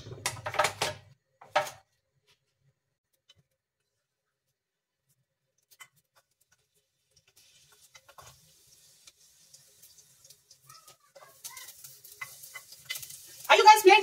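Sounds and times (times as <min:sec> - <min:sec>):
faint sizzle in pan: 0:03.3 - 0:14.0.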